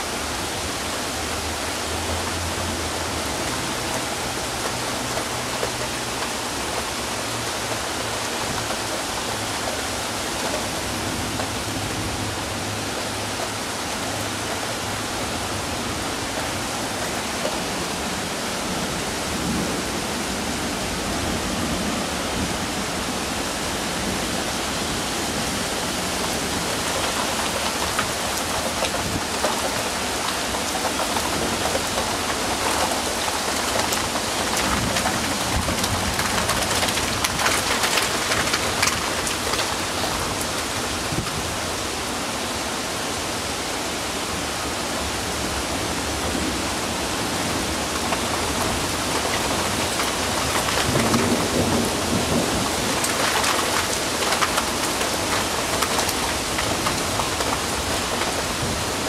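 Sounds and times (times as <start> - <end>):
heavy rain pouring: 0.0 - 59.0
thunder rumbling: 30.8 - 40.3.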